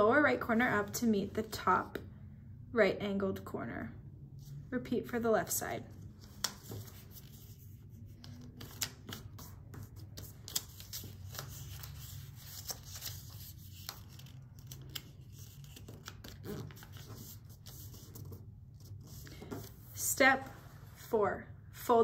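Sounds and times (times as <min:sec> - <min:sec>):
paper crinkling and rustling: 0:06.0 - 0:19.8.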